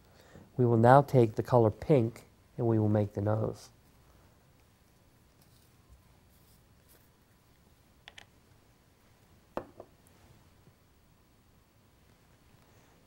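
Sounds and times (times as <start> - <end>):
jar and lid tapping on bench: 9.6 - 9.9.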